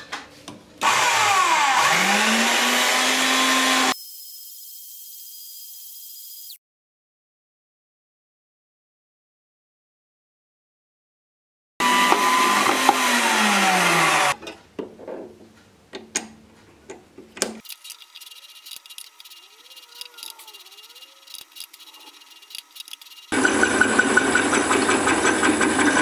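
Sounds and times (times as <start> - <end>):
bandsaw winding down: 0.8 - 4.0, 11.8 - 14.4, 17.7 - 26.0.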